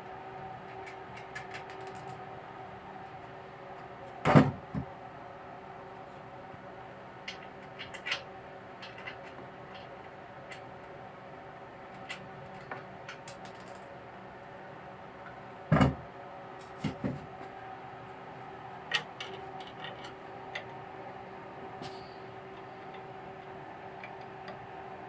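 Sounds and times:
steady background hum: 0.0 - 25.0.

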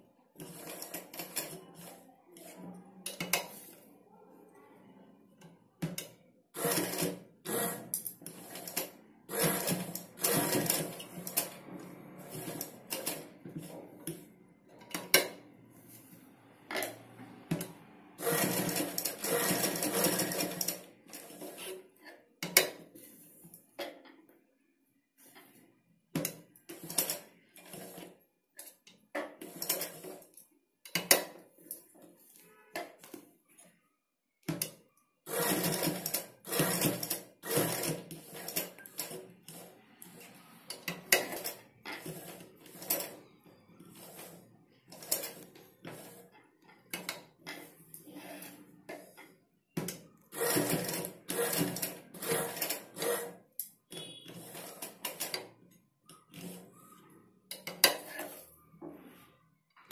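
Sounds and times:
sewing machine stitching: 0.4 - 2.5, 6.6 - 14.3, 16.7 - 23.1, 26.2 - 31.4, 34.5 - 49.1, 49.8 - 55.5.

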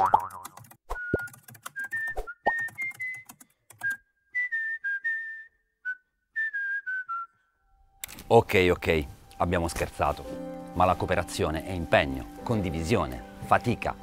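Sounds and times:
person whistling a tune: 0.9 - 7.6.

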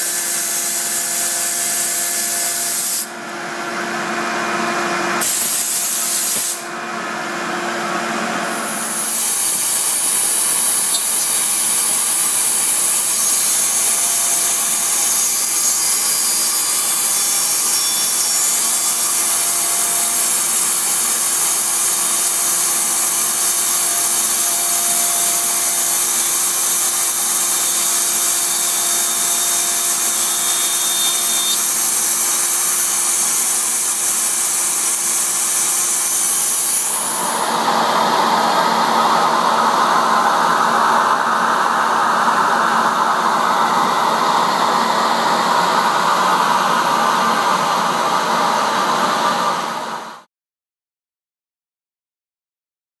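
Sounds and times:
cutter hissing in wood: 5.2 - 6.6, 8.6 - 37.6
router spindle whining: 9.2 - 47.7.

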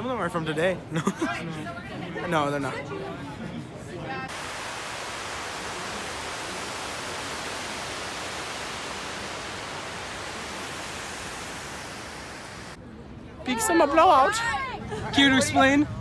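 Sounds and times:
water rushing down walls: 4.3 - 12.8.

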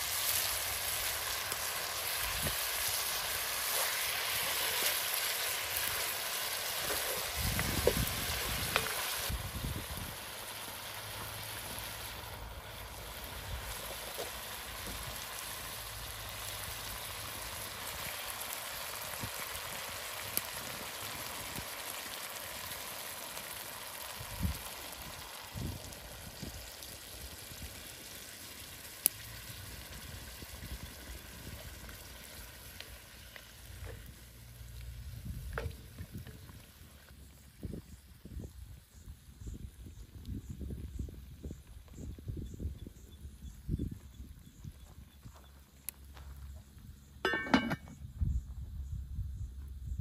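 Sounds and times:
food sizzling in a pot: 0.0 - 42.6, 47.2 - 48.0.

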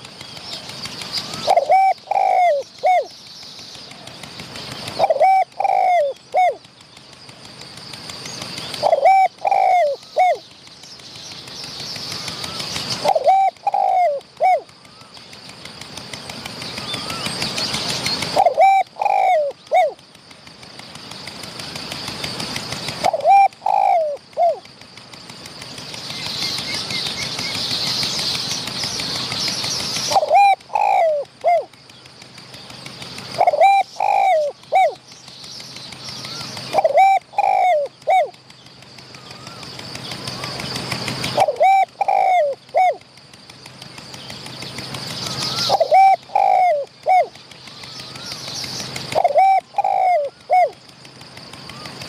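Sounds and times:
dove cooing: 0.7 - 3.1, 4.0 - 6.7, 8.5 - 10.5, 12.3 - 15.2, 18.2 - 20.0, 22.0 - 24.7, 30.0 - 31.8, 33.2 - 35.0, 36.2 - 38.4, 40.3 - 43.0, 45.3 - 50.8.

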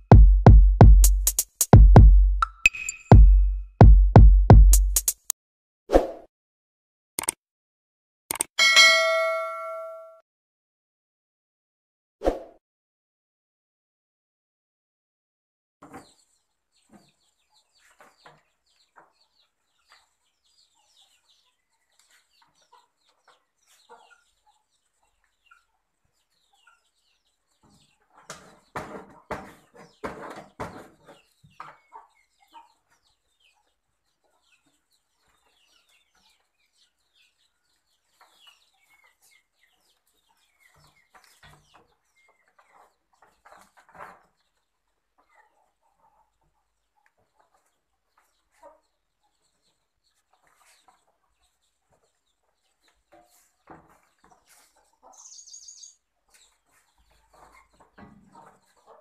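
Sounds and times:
short high chirps: 2.4 - 3.8
chickens clucking: 15.8 - 59.0.

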